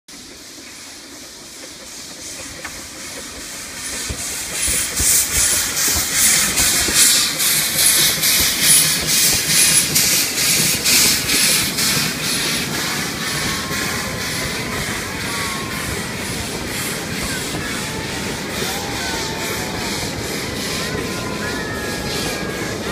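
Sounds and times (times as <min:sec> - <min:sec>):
steam hiss: 0:00.1 - 0:22.9
steam locomotive chuffing: 0:00.1 - 0:22.9
wheels clacking on rails: 0:00.1 - 0:22.9
carriages rumbling past: 0:02.8 - 0:22.9.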